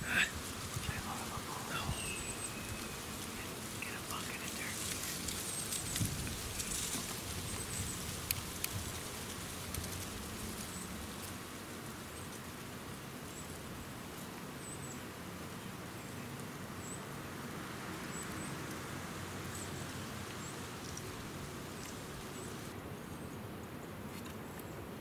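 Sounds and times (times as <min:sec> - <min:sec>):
faint bird chirps: 0:00.0 - 0:08.0
rustling in dry leaves: 0:00.0 - 0:23.4.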